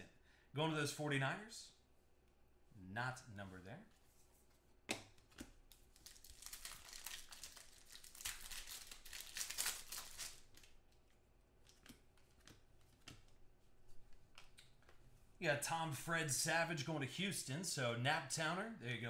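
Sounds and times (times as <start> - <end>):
plastic wrapper crinkling: 5.7 - 11.9.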